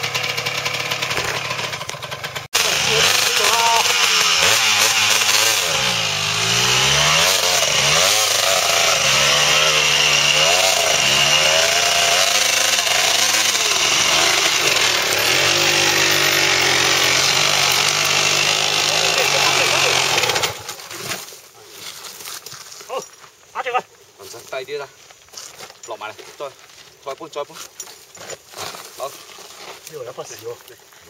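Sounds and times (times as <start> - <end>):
dirt bike engine revving: 0.0 - 21.2.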